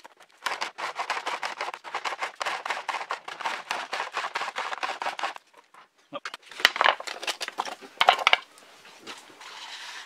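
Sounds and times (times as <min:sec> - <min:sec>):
plastic rasping on sandpaper: 0:00.0 - 0:05.5.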